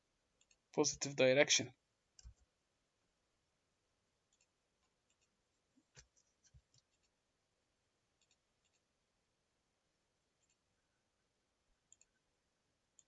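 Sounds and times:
mouse and keyboard clicks: 2.2 - 2.5, 8.2 - 8.8.

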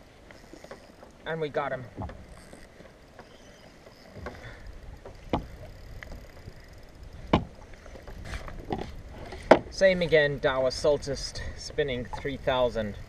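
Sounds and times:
low wind rumble: 0.0 - 13.0
water lapping against kayak: 0.0 - 13.0.

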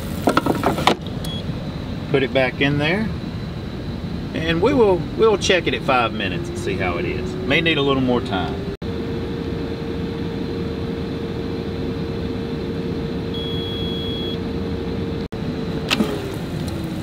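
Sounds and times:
air fryer fan humming: 0.0 - 17.0
timer beep: 13.4 - 14.4.

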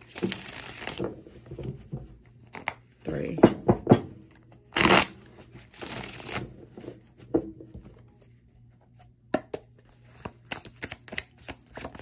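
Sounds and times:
cards being shuffled: 0.0 - 1.1, 4.7 - 7.0, 9.8 - 12.0.

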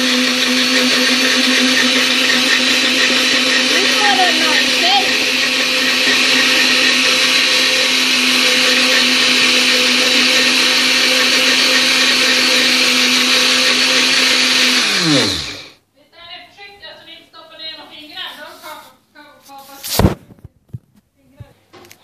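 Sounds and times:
blender running: 0.0 - 15.8.

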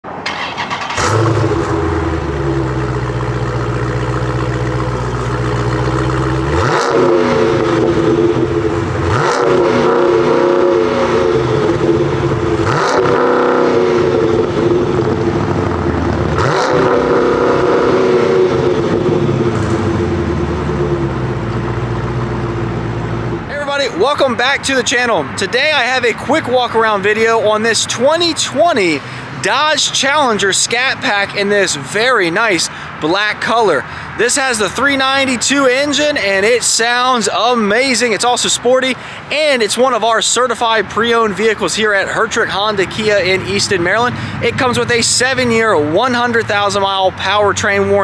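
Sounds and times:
car engine idling and revving: 0.2 - 23.5, 38.5 - 48.0.

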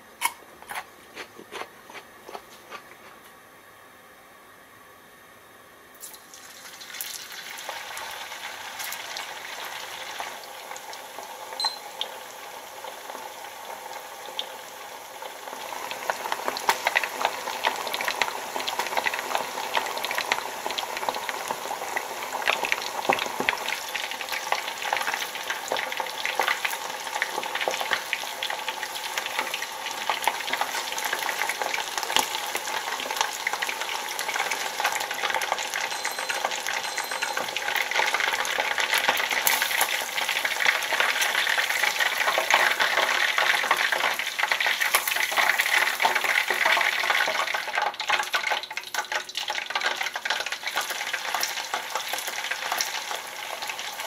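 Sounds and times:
chicken deep-frying in oil: 6.0 - 54.0.

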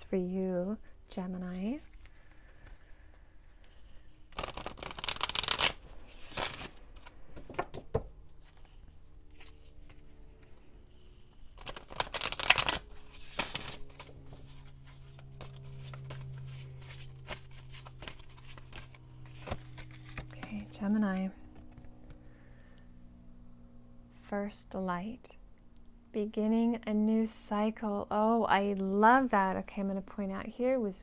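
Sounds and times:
cards riffling and sliding: 3.7 - 20.4, 21.5 - 22.2
light card handling: 4.4 - 22.2.

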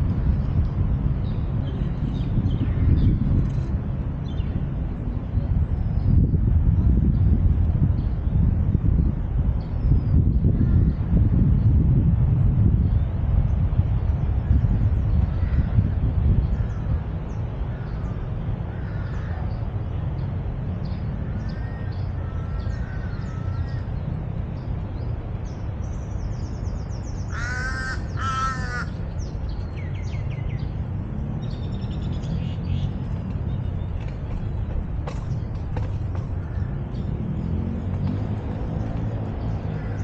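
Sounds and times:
steady low rumble: 0.0 - 40.0
crow cawing: 27.3 - 29.0.

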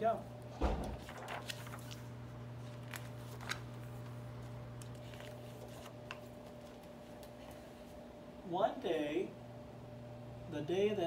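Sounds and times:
steady low hum: 0.0 - 11.0
book pages turning: 0.8 - 8.0.

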